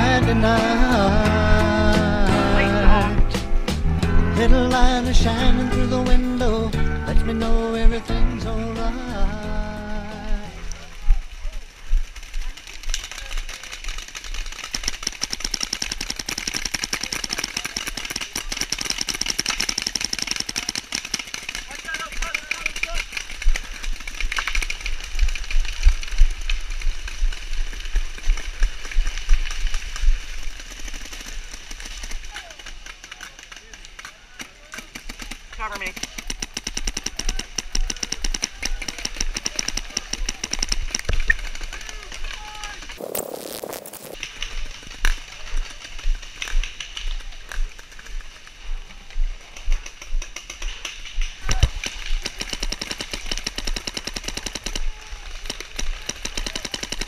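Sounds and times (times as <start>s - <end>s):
rapid paintball gunfire: 11.8s - 48.4s, 49.3s - 57.0s.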